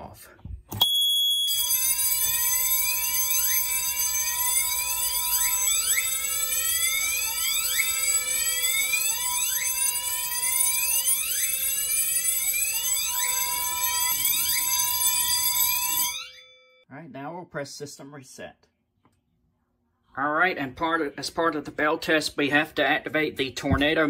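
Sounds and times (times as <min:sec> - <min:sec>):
fire alarm whooping: 0:00.8 - 0:16.8.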